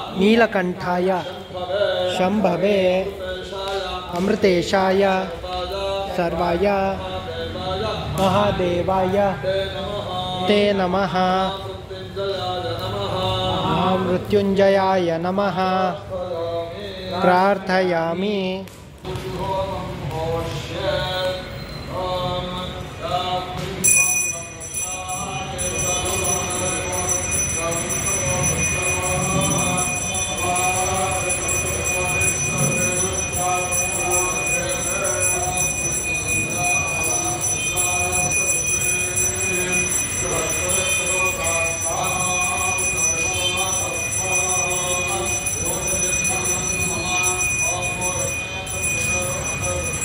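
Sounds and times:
voices chanting: 19.2 - 50.0
hand bell ringing: 23.8 - 50.0.

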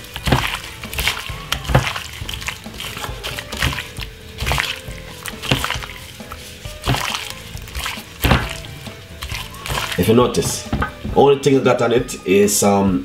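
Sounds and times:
raw chicken squishing in a bowl: 0.0 - 11.6
faint background music: 0.0 - 13.0.

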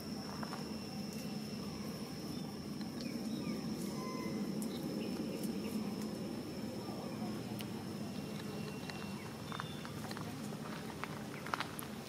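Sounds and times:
high-pitched drone: 0.0 - 9.7
faint clicks and chirps: 4.6 - 6.2, 7.5 - 10.6.

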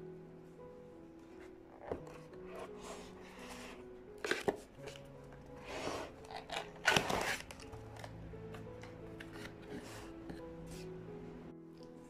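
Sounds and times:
soft background music: 0.0 - 12.0
cardboard scraping and rubbing: 5.6 - 7.6.

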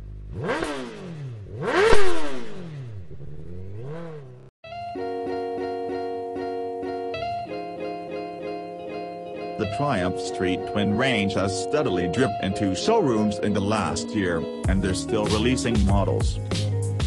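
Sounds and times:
motorcycle engine revving: 0.0 - 4.5
plucked guitar music: 4.6 - 17.0.

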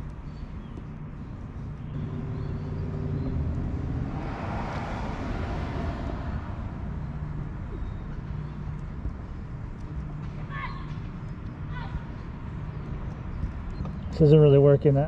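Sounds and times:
traffic engine hum: 0.0 - 15.0
vehicle passing: 1.9 - 9.1.

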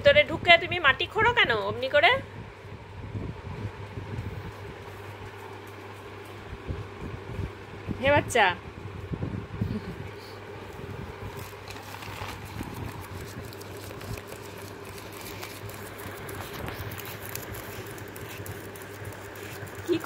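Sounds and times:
dog claws scratching hard floor: 11.3 - 20.0.

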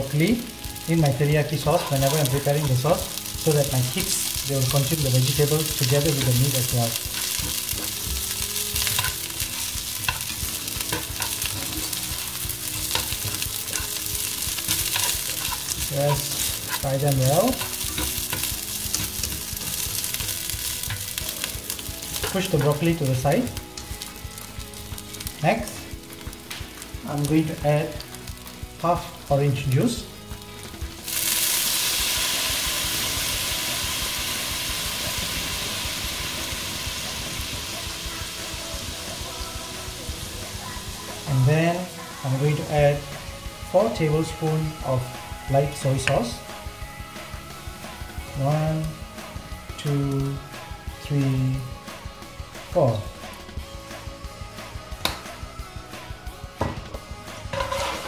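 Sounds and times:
vegetables sizzling in oil: 0.0 - 58.0
spatula scraping and tapping pan: 7.1 - 12.1, 12.7 - 21.2, 57.5 - 58.0.

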